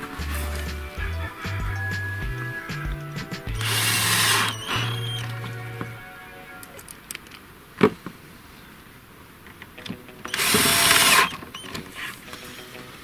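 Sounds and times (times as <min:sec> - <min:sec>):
cordless drill driving screw: 0:03.6 - 0:05.3, 0:10.3 - 0:11.9.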